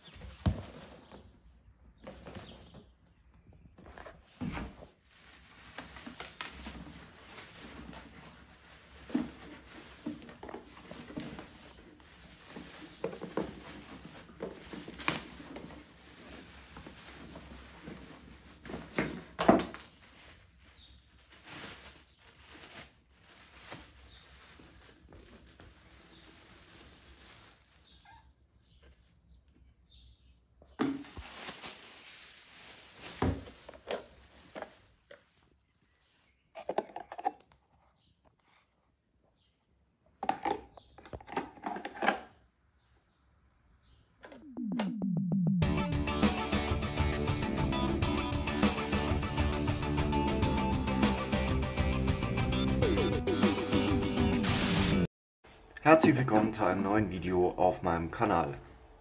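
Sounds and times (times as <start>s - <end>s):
plastic bag rustling and crinkling: 3.9s - 28.3s, 30.8s - 36.4s.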